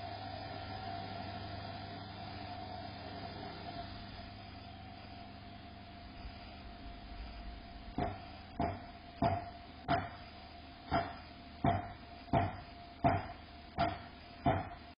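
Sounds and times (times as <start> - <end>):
hammer blows: 10.9 - 14.9.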